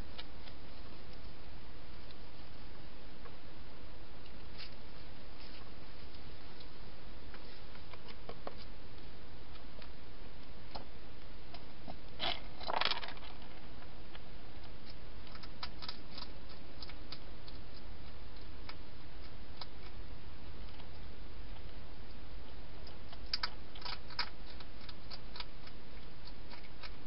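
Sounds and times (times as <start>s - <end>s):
steady hiss and hum: 0.0s - 27.0s
hedgehog crunching dry food: 11.5s - 20.0s, 22.7s - 27.0s.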